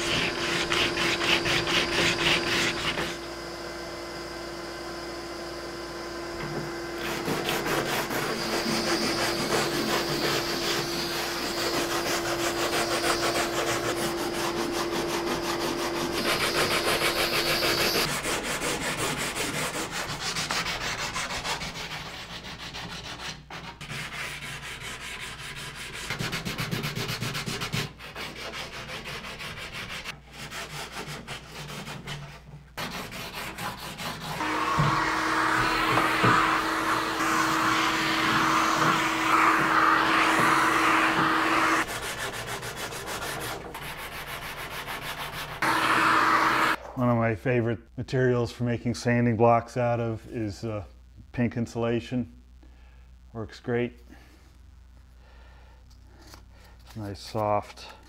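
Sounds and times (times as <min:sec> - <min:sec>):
sandpaper rubbing on wood: 0:00.0 - 0:03.2, 0:07.0 - 0:45.7.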